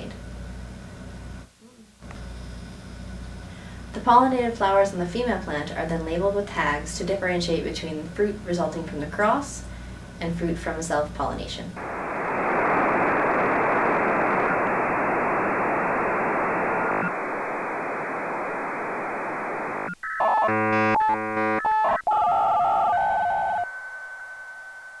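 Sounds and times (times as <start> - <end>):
radio static hiss: 11.7 - 20.5
electronic beeps and tones: 19.8 - 23.8.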